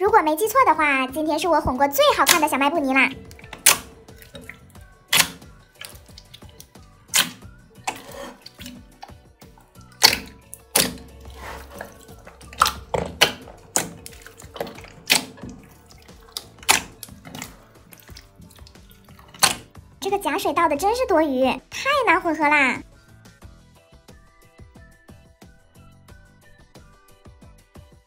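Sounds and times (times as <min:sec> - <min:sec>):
soft background music: 0:00.0 - 0:28.0
wet slime squishing and popping: 0:02.2 - 0:19.8.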